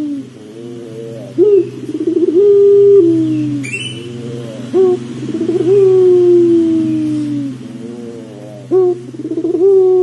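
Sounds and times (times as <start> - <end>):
dove cooing: 0.0 - 10.0
steady low hum: 0.0 - 10.0
high bird chirp: 3.3 - 4.2.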